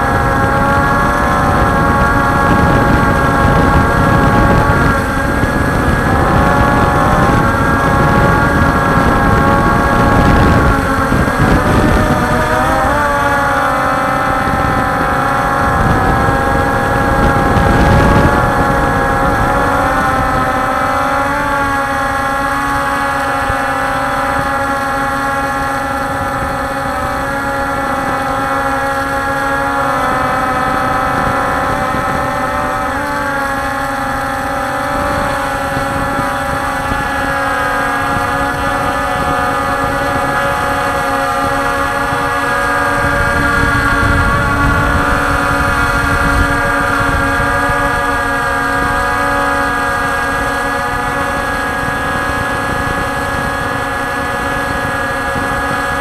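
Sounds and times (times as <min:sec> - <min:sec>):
drone motors whining: 0:00.0 - 0:56.0.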